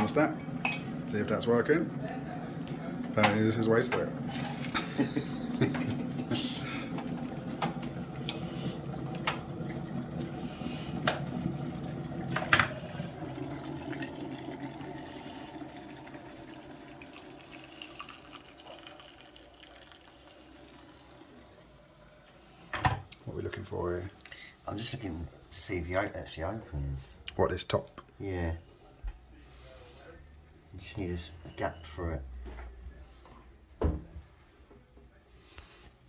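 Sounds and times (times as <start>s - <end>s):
electric kettle boiling: 0.0s - 28.6s.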